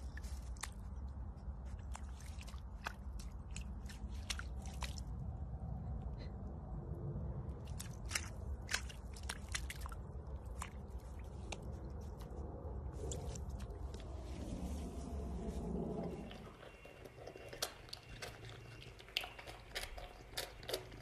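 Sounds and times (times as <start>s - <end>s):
animal biting and chewing: 0.0s - 5.2s, 7.6s - 12.4s, 15.6s - 21.0s
low steady rumble: 0.0s - 21.0s.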